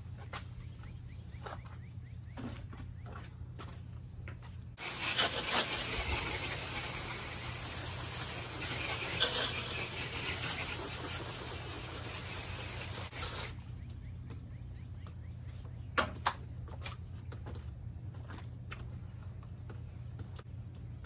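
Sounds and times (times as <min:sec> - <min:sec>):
hose spraying water: 0:04.8 - 0:13.7.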